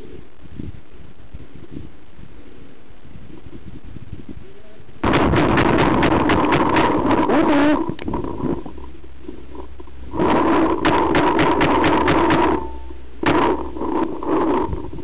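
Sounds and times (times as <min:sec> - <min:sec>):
paintball marker firing bursts: 0:10.2 - 0:14.7.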